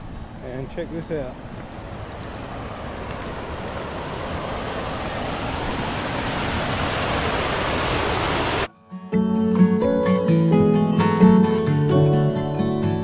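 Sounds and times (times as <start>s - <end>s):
waterfall rushing: 1.4s - 8.7s.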